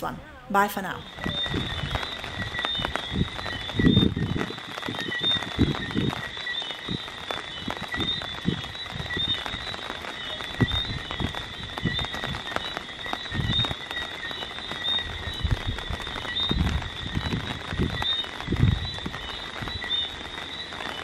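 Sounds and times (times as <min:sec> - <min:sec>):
frogs chirping: 0:00.0 - 0:21.0
rain patter: 0:00.0 - 0:21.0
wind gusts on microphone: 0:00.0 - 0:21.0.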